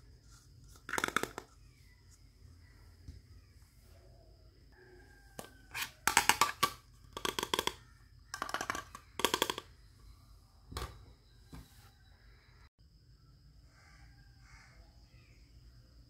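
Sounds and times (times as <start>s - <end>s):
plastic toy dishes clattering: 0.7s - 1.6s, 5.4s - 9.8s.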